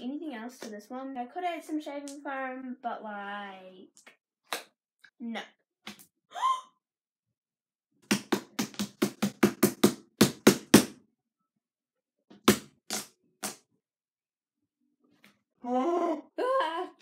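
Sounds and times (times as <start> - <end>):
hands slapping slime: 8.0 - 11.0.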